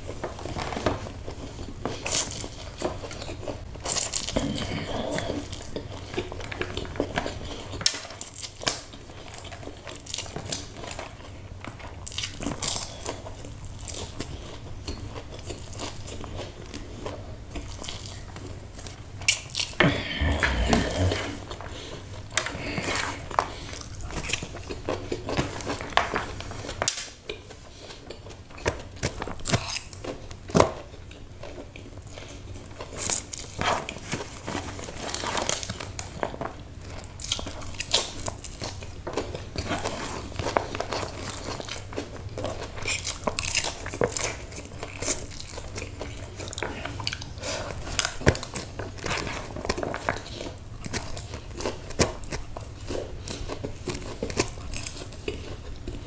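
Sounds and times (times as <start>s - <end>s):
chewing and lip smacks: 1.2s - 56.0s
slurping noodles: 19.8s - 23.8s.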